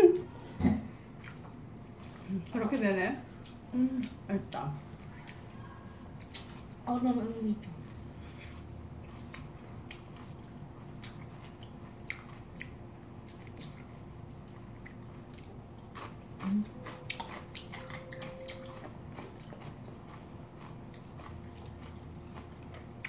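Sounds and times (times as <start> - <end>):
biting and chewing noodles: 8.3 - 23.0.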